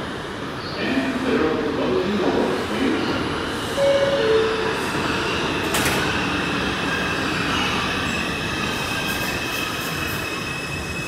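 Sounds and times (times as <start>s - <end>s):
train rumble: 0.0s - 11.0s
train doors knocking shut: 5.6s - 6.2s
high wheel squeal: 6.2s - 11.0s.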